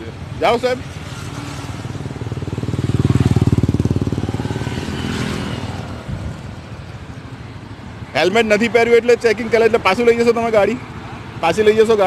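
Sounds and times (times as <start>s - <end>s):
motorcycle engine passing by: 0.8s - 7.2s.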